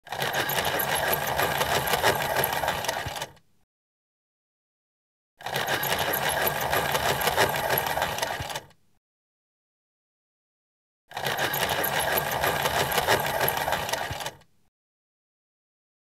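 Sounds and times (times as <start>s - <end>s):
pencil sharpener grinding: 0.0s - 3.4s, 5.4s - 8.7s, 11.1s - 14.4s.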